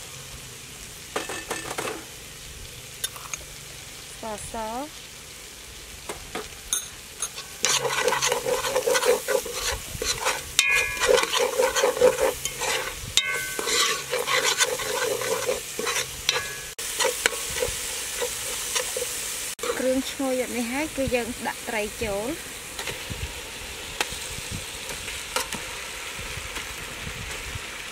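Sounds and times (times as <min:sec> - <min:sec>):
paste sizzling in oil: 0:00.0 - 0:27.9
spoon stirring and scraping pot: 0:07.2 - 0:20.0.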